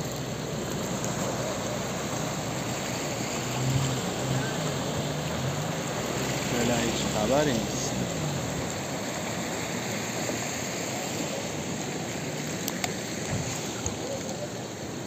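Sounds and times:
rough sea surf: 0.0s - 15.0s
wind: 0.0s - 15.0s
faint clicks: 12.5s - 14.4s.

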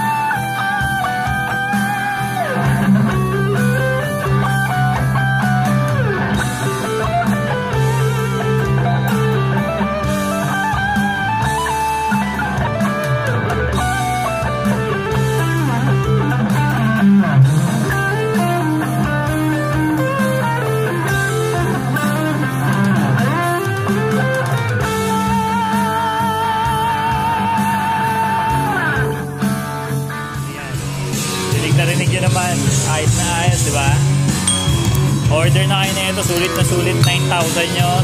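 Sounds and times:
distorted electric guitar lead: 0.0s - 38.0s
rock backing track: 0.0s - 38.0s.

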